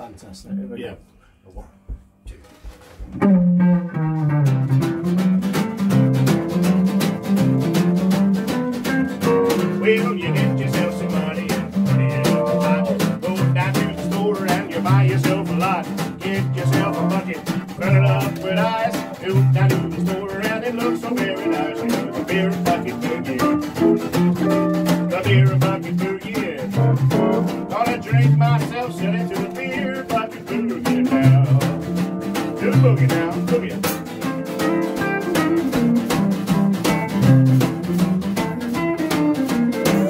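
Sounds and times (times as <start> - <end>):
bouncing bass notes: 1.7 - 40.0
rockabilly guitars: 2.2 - 40.0
man singing: 9.1 - 31.9, 32.6 - 33.9, 39.8 - 40.0.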